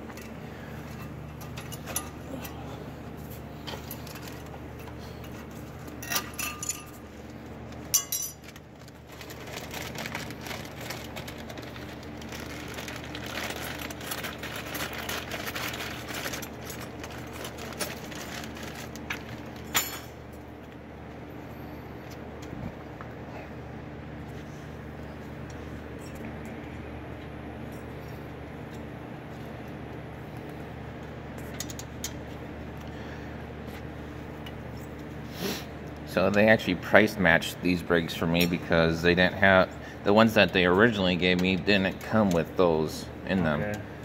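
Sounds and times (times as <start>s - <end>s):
steady low hum: 0.0s - 44.0s
small metal parts clinking: 6.0s - 7.0s, 7.9s - 8.6s
rustling handling: 7.2s - 19.7s.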